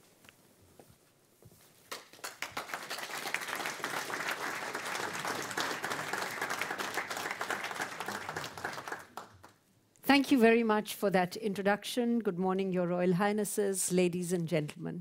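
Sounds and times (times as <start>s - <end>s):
audience applauding: 1.9s - 9.6s.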